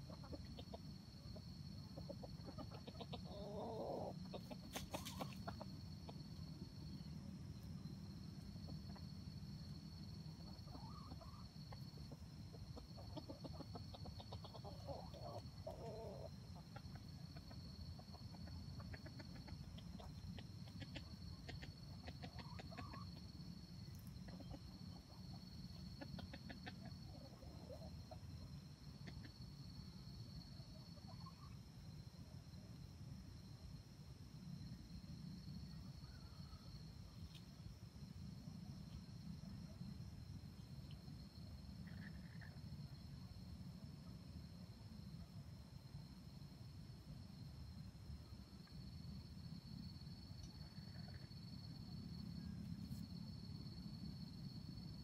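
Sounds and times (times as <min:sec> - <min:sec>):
junglefowl clucking: 0:00.0 - 0:06.2, 0:10.4 - 0:23.3, 0:24.2 - 0:28.2, 0:28.9 - 0:29.4.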